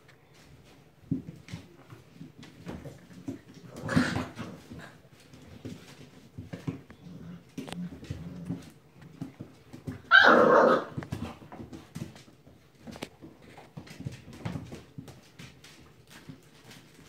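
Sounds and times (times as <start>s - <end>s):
soft scuffling: 0.0s - 10.1s
puppy barking: 10.1s - 11.0s
paws ticking on floor: 10.8s - 17.0s.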